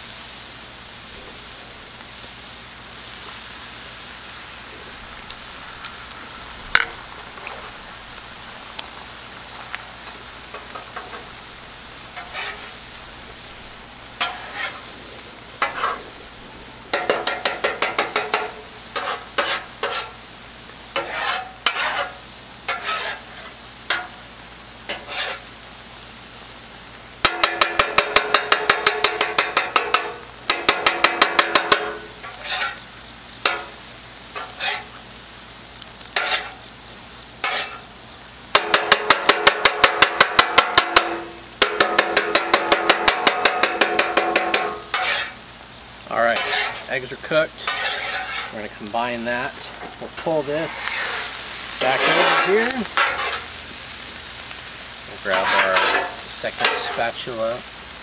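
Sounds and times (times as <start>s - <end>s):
eggs sizzling: 0.0s - 58.0s
metal spatulas clacking on griddle: 10.5s - 11.3s, 14.2s - 14.8s, 16.9s - 20.1s, 21.0s - 23.2s, 23.9s - 24.2s, 24.9s - 25.4s, 27.2s - 32.8s, 33.4s - 33.7s, 34.4s - 34.9s, 36.2s - 36.6s, 37.4s - 37.8s, 38.5s - 45.4s, 46.4s - 46.8s, 47.6s - 48.5s, 50.9s - 53.4s, 55.3s - 57.0s.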